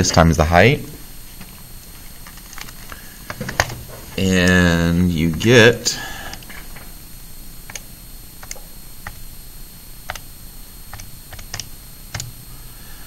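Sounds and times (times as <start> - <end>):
calculator keys clicking: 8.4 - 9.2, 10.9 - 12.3.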